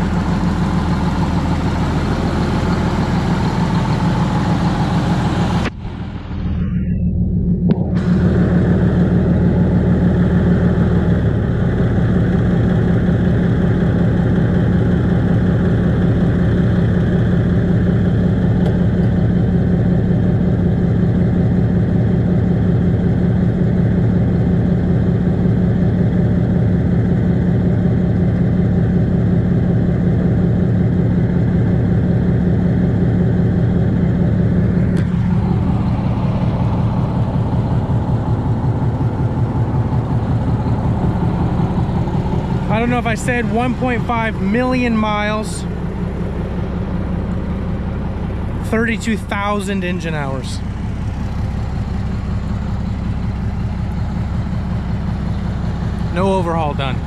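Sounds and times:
diesel truck engine idling: 0.0s - 57.0s.

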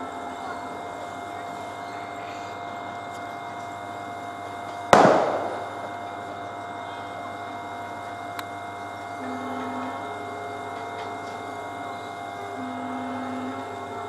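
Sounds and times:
steady hum: 0.0s - 14.0s
sharp bang: 4.9s - 5.9s.

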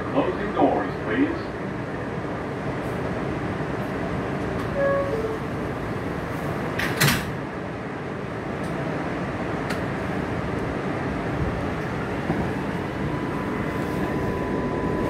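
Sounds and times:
subway car rumble: 0.0s - 15.0s
sliding doors banging shut: 6.7s - 7.3s.

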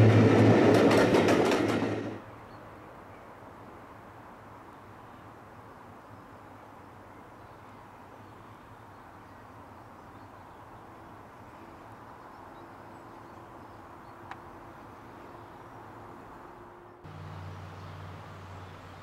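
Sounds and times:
distant low engine hum: 0.0s - 2.6s, 6.8s - 19.0s.

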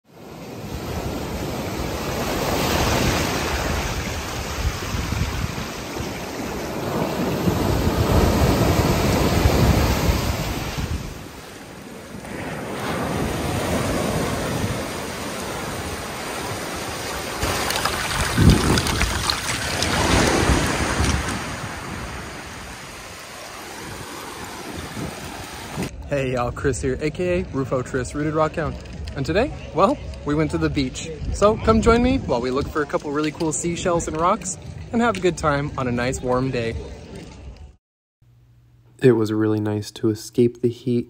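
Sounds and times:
ocean waves breaking: 0.1s - 26.0s
wind buffeting microphone: 0.6s - 11.4s, 12.2s - 27.6s, 28.7s - 35.0s.

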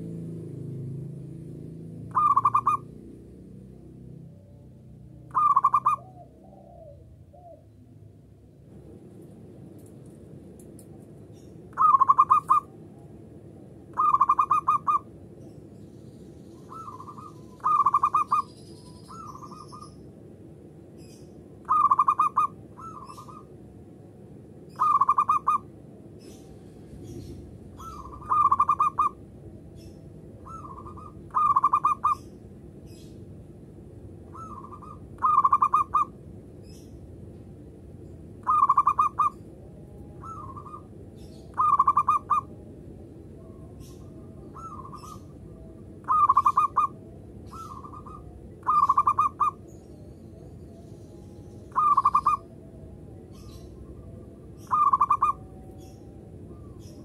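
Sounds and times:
dove cooing: 2.1s - 3.0s, 5.3s - 7.8s, 11.7s - 12.9s, 13.9s - 15.1s, 16.6s - 18.5s, 21.6s - 23.5s, 24.7s - 32.3s, 34.3s - 36.2s, 38.4s - 57.0s.

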